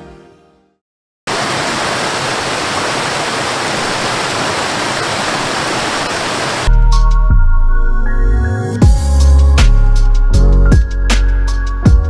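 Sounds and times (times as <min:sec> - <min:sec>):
waterfall rushing: 0:01.3 - 0:06.7
music with deep bass: 0:06.7 - 0:12.0.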